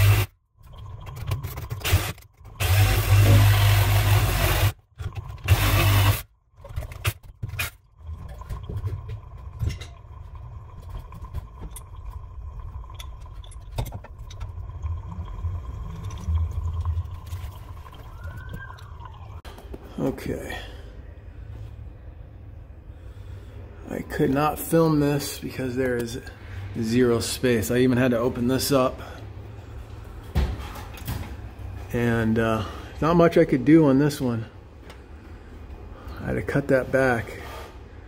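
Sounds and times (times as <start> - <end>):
power tool motor bursts: 1.8 - 4.7, 5.4 - 6.2.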